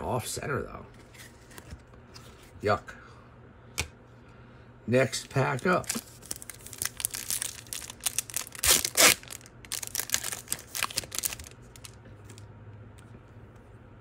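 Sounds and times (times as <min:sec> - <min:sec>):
card pack wrapper crinkling: 0:05.2 - 0:12.4
wrapper ripping: 0:05.7 - 0:12.4.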